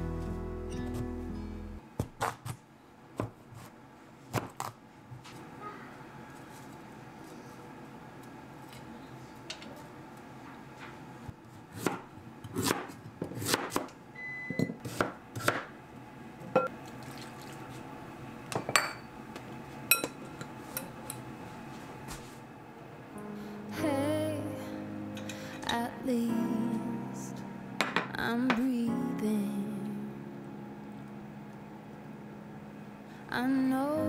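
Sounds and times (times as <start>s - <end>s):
knife chopping on wooden board: 11.8s - 13.9s, 14.8s - 15.7s.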